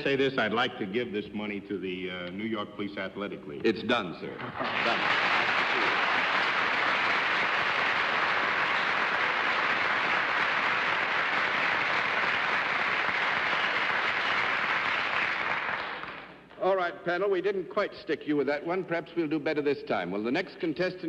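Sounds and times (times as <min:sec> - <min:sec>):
audience applauding: 0:04.5 - 0:16.4.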